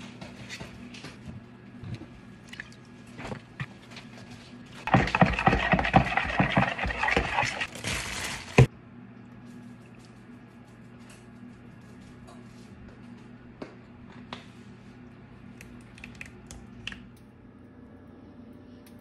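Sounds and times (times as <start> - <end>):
utensil scraping plastic bowl: 4.9 - 7.7.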